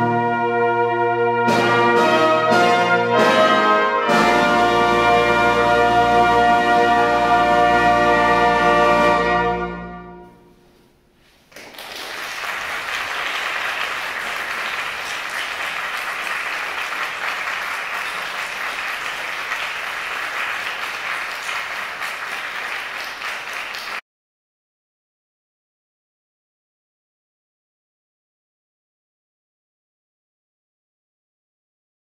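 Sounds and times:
brass band chord: 0.0s - 10.8s
audience applause: 11.5s - 24.0s.

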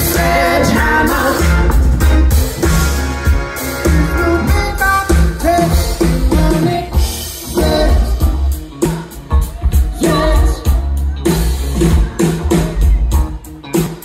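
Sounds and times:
person singing: 0.0s - 2.5s, 3.6s - 14.0s
pop band playing: 0.0s - 14.0s.

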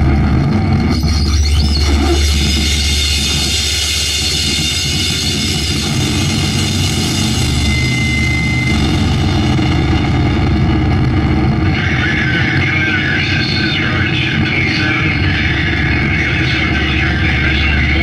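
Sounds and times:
heavy low rumble: 0.0s - 18.0s
wall of distorted noise: 0.0s - 18.0s
thin high whistle: 7.3s - 9.1s.

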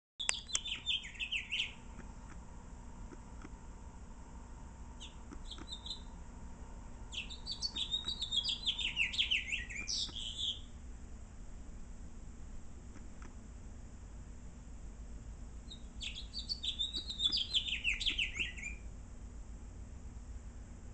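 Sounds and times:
finch chirping and warbling: 0.2s - 1.8s, 5.0s - 6.1s, 7.1s - 10.7s, 15.7s - 18.8s.

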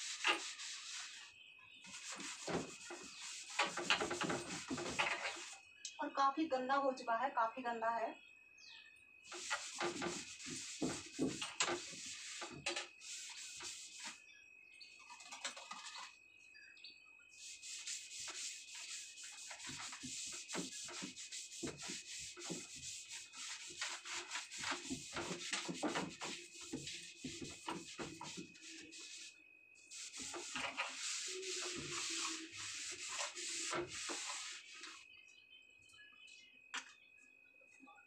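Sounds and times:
scrubbing wooden shelves: 0.0s - 5.6s, 9.3s - 14.2s, 17.4s - 35.0s.

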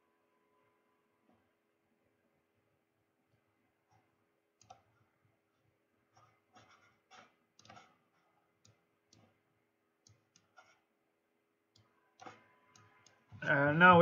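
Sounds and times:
faint electrical hum: 0.0s - 14.0s
computer mouse clicks: 3.9s - 5.0s, 6.2s - 9.4s, 10.0s - 10.9s, 11.7s - 13.3s.

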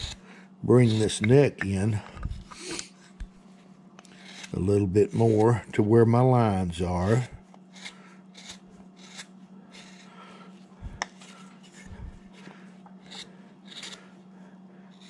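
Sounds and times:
gouge scraping wood: 0.0s - 0.2s, 0.8s - 1.9s, 4.1s - 5.6s, 6.8s - 10.2s, 11.1s - 14.1s.

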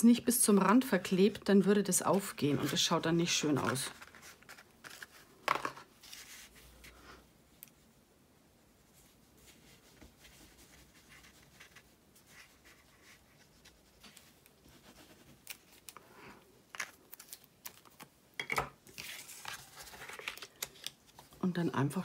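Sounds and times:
paper rustle: 2.1s - 7.0s, 18.9s - 21.4s
card being folded: 3.6s - 6.9s, 16.7s - 18.1s, 18.9s - 21.4s.

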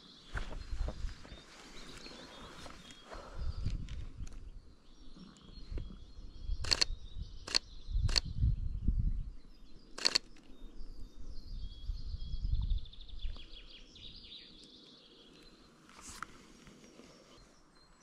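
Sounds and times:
songbirds singing: 0.0s - 18.0s
camera shutter clicks: 6.6s - 6.9s, 10.0s - 10.4s.

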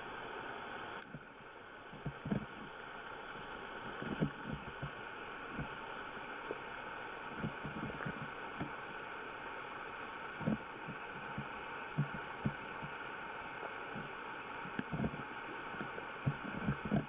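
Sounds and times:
underwater hiss: 0.0s - 17.0s
soft low underwater thumps: 1.9s - 5.8s, 10.4s - 13.0s, 15.8s - 17.0s.

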